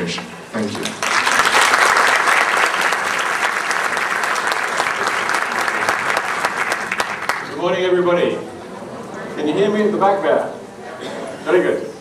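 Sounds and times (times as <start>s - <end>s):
audience applauding: 0.8s - 7.6s.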